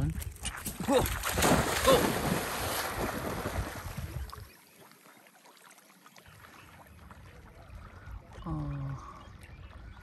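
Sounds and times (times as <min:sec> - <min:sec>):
water lapping: 0:00.0 - 0:10.0
dog splashing into water: 0:00.8 - 0:04.2.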